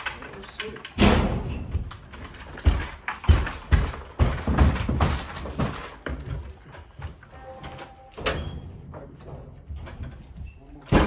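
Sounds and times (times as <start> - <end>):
mattress thumping down stairs: 1.7 - 6.6.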